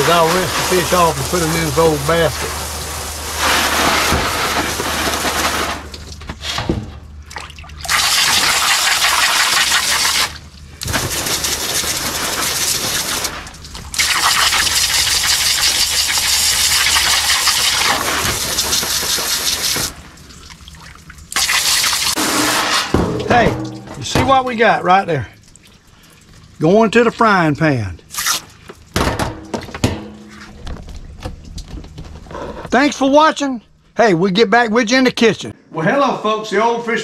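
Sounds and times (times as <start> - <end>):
water spraying onto fish: 0.0 - 6.1, 7.8 - 22.8.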